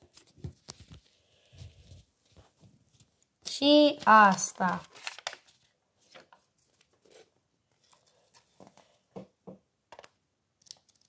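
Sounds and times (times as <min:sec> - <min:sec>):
paper pad rustling: 0:00.0 - 0:08.8.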